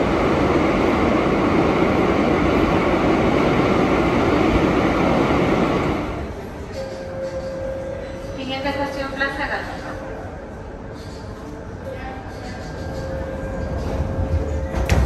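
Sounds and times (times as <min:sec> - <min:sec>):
train rushing past: 0:00.0 - 0:10.7.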